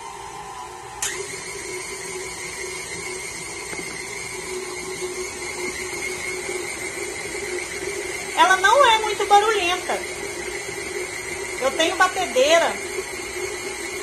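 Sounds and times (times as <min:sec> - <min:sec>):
stand mixer motor humming: 0:00.0 - 0:14.0.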